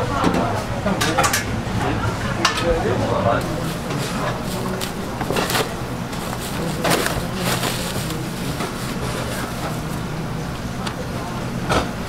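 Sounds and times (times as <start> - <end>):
kitchen hum: 0.0 - 12.0
plastic bag crinkling: 3.7 - 10.0.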